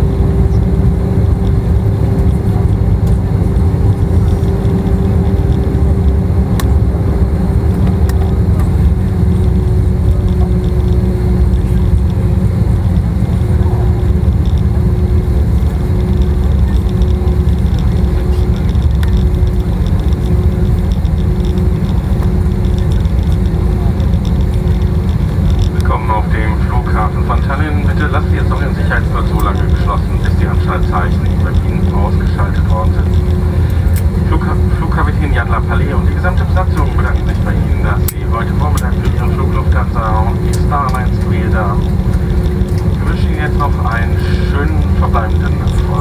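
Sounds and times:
aircraft cabin rumble: 0:00.0 - 0:46.0
pulsing hum: 0:00.0 - 0:46.0.

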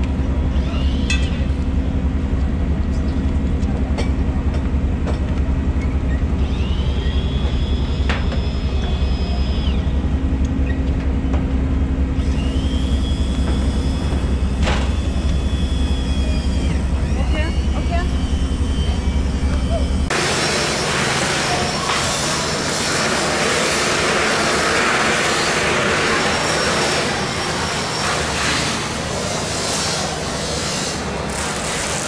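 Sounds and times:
high whine: 0:12.0 - 0:32.0
engine idling: 0:12.1 - 0:31.7.

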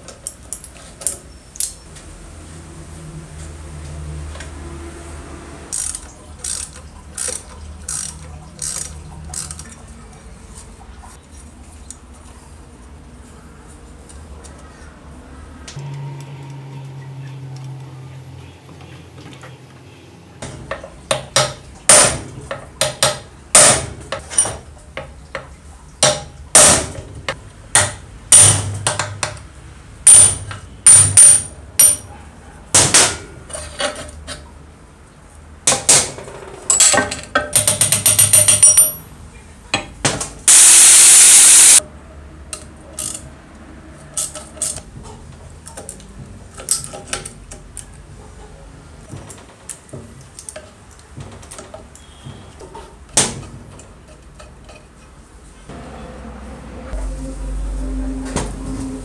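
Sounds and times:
hammer striking steel: 0:27.8 - 0:29.1
steady hiss: 0:40.5 - 0:41.8.

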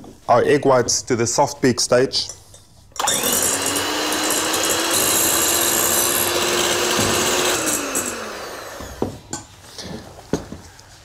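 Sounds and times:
electric hand mixer whirring: 0:03.0 - 0:09.3.

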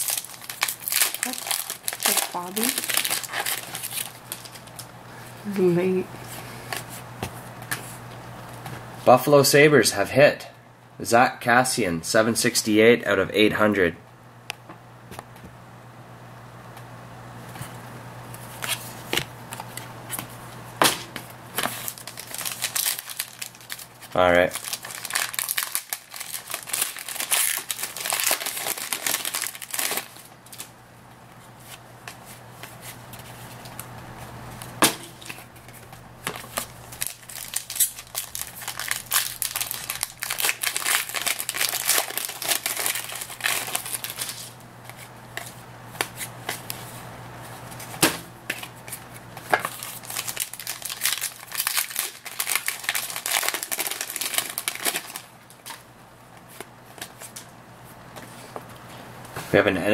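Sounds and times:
foil wrapper crinkling and tearing: 0:00.0 - 0:04.9, 0:21.6 - 0:30.7, 0:35.2 - 0:45.0, 0:49.5 - 0:55.8.

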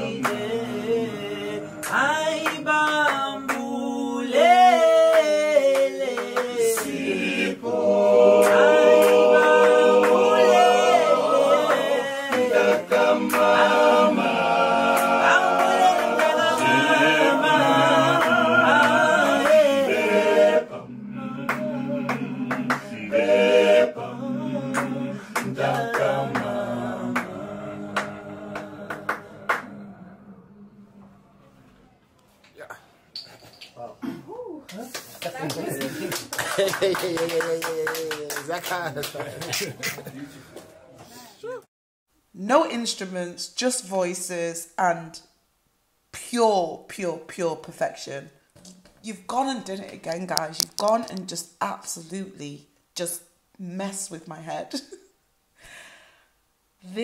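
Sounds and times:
male vocal group singing in harmony: 0:00.0 - 0:31.2.

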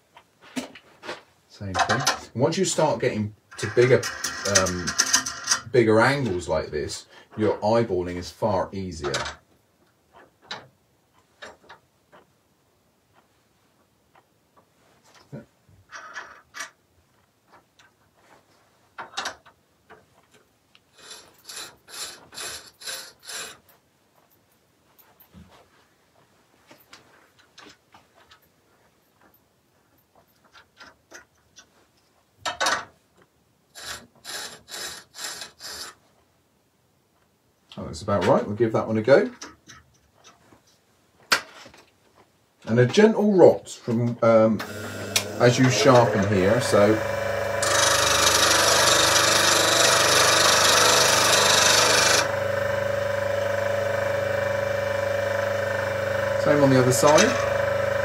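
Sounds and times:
steel scraping on stone wheel: 0:03.5 - 0:06.2, 0:20.9 - 0:23.8, 0:33.8 - 0:36.0, 0:44.6 - 0:58.0
bench grinder motor humming: 0:44.6 - 0:58.0.

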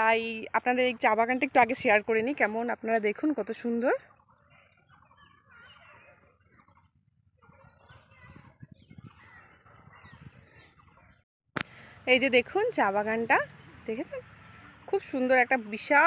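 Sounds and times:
faint bird calls: 0:04.0 - 0:12.0.

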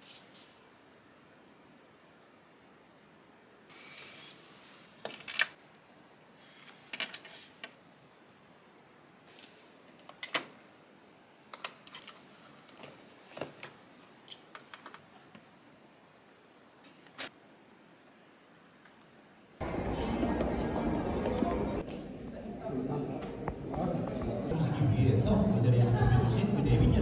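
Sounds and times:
jewelry clicking and clinking: 0:05.0 - 0:05.6.

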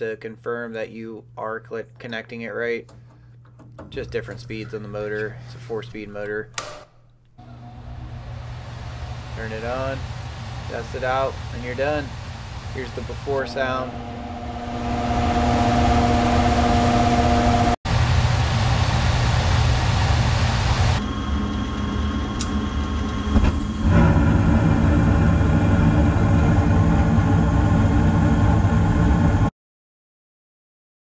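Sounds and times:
furnace blower motor whirring: 0:07.4 - 0:29.5.

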